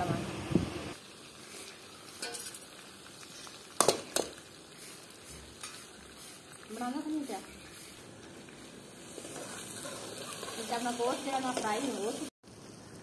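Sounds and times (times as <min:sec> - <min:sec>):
meat sizzling in a metal pan: 0:00.9 - 0:13.0
ladle stirring: 0:03.8 - 0:10.8.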